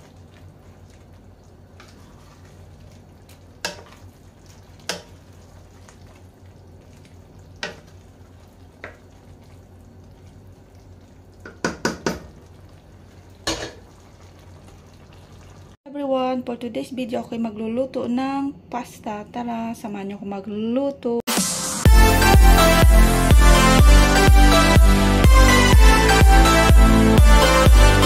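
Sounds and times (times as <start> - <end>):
wooden spoon stirring pasta: 0.0 - 12.1
spoon knocking against pan: 11.4 - 12.3.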